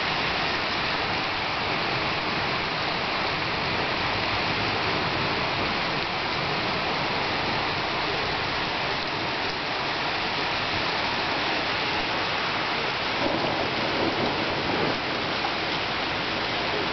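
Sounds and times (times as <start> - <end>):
heavy rain on street and cars: 0.0 - 16.9.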